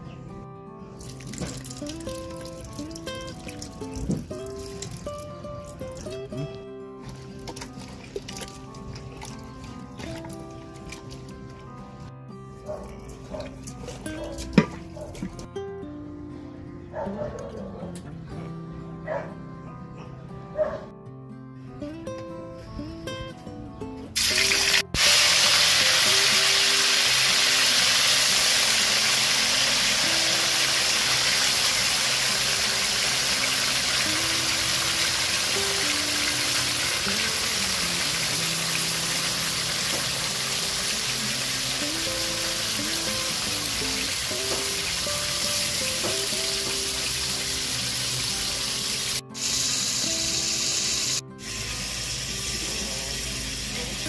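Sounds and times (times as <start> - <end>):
background music: 0.0 - 54.0
meat sizzling in a wok: 24.2 - 54.0.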